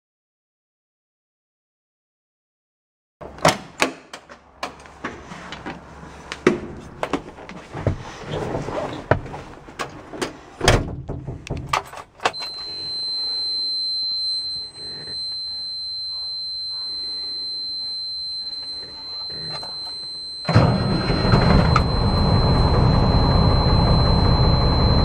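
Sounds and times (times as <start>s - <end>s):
knocks and thumps in truck cab: 10.2s - 12.0s
high-pitched warning buzzer: 12.3s - 25.0s.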